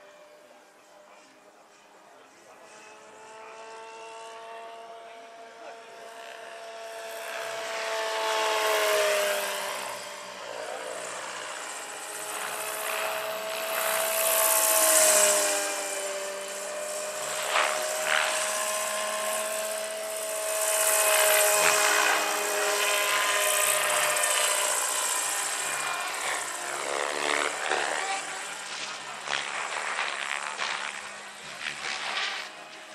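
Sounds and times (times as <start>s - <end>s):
model helicopter whine: 0.0s - 32.9s
rotor blades whooshing: 7.4s - 32.9s.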